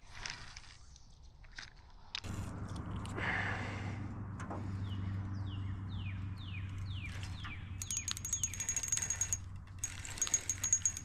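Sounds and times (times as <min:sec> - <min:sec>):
electric motor hum: 0:02.2 - 0:11.0
quick mechanical clicking: 0:06.7 - 0:11.0.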